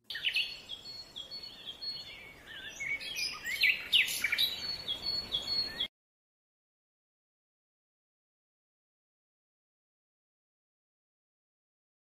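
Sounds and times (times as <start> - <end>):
birds chirping and calling: 0.1 - 5.9.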